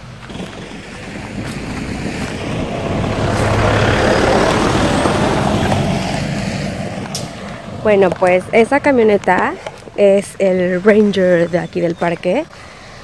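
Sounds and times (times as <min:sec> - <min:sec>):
pickup truck driving past: 0:00.0 - 0:08.5
tyres on dirt: 0:00.0 - 0:13.0.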